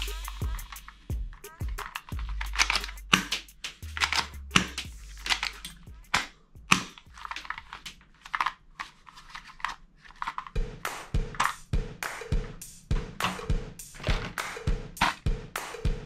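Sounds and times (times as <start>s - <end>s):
plastic toy guns clattering: 1.7s - 10.6s, 11.3s - 11.6s, 13.2s - 14.4s, 15.0s - 15.2s.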